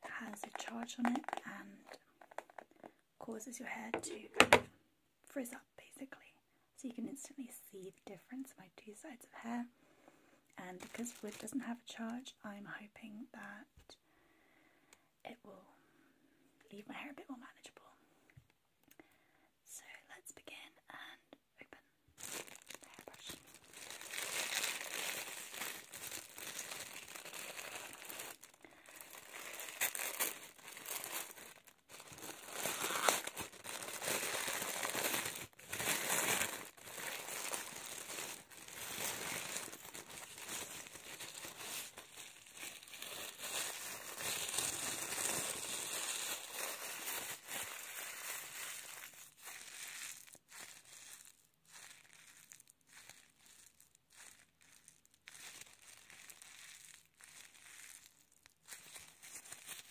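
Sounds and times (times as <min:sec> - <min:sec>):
plastic wrapping crinkling: 0:00.0 - 0:02.9, 0:10.8 - 0:11.6, 0:22.2 - 0:59.9.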